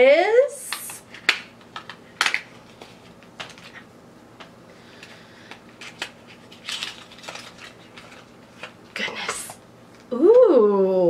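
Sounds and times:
package rustling: 1.1 - 3.9, 4.9 - 9.6.

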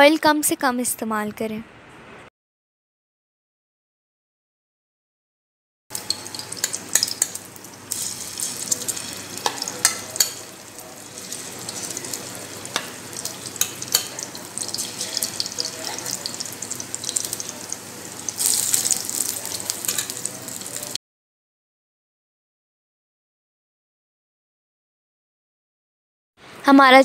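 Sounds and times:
food deep-frying in oil: 5.9 - 21.0.

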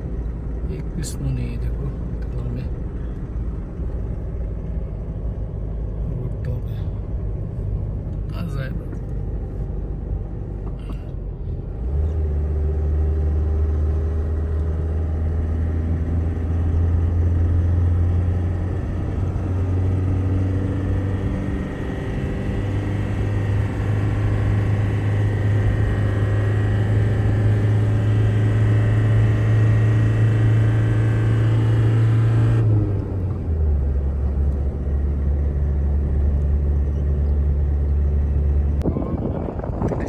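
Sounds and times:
car engine and road noise: 0.0 - 40.0.

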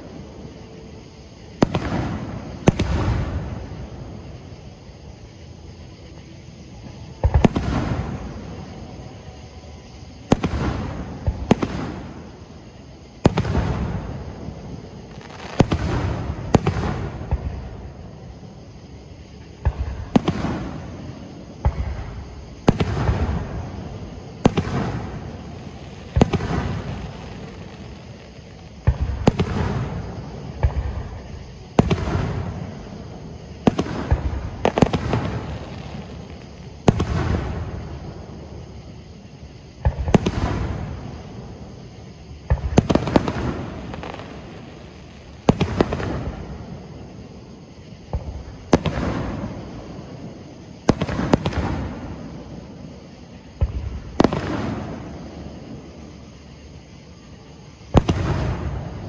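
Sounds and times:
fireworks bursting with echo: 0.0 - 5.3, 6.7 - 56.5, 57.6 - 59.0.

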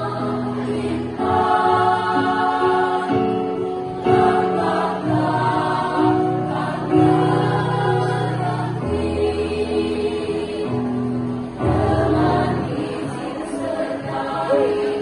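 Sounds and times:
women's choir singing: 0.0 - 15.0.

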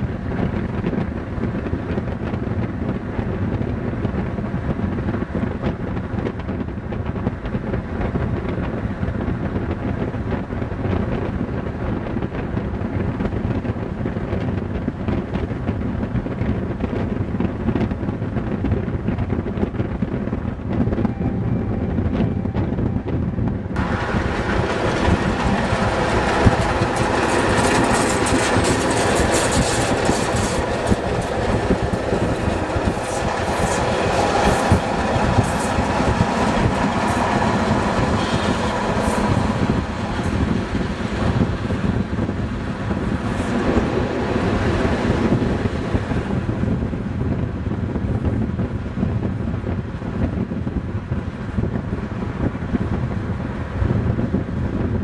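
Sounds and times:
train rumble: 0.0 - 55.0
wheels clattering over rail joints: 23.8 - 42.4.

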